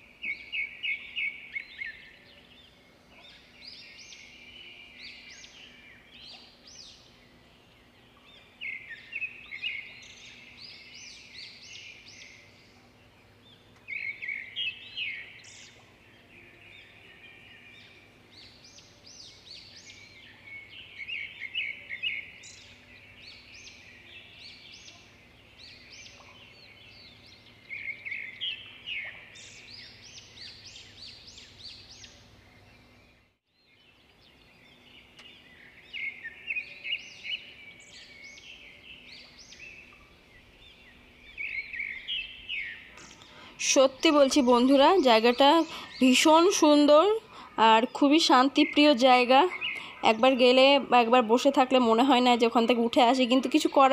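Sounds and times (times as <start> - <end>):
faint steady hum: 0.0 - 53.9
songbirds chirping: 0.0 - 53.9.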